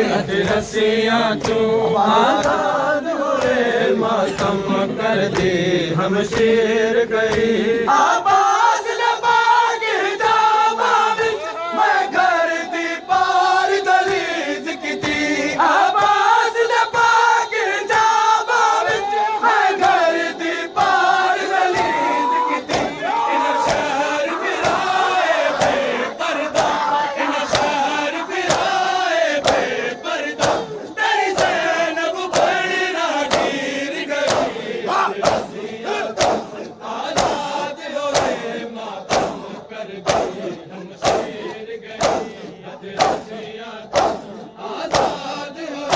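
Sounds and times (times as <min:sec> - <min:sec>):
men chanting a lament in unison: 0:00.0 - 0:45.9
hand slaps on chest: 0:06.3 - 0:06.5, 0:22.7 - 0:23.0, 0:28.5 - 0:28.7, 0:32.3 - 0:32.6, 0:33.3 - 0:33.6, 0:34.3 - 0:34.6, 0:35.2 - 0:35.5, 0:36.2 - 0:36.5, 0:37.2 - 0:37.4, 0:38.1 - 0:38.4, 0:39.1 - 0:39.4, 0:40.1 - 0:40.4, 0:41.0 - 0:42.4, 0:43.0 - 0:43.3, 0:43.9 - 0:44.3, 0:44.9 - 0:45.2.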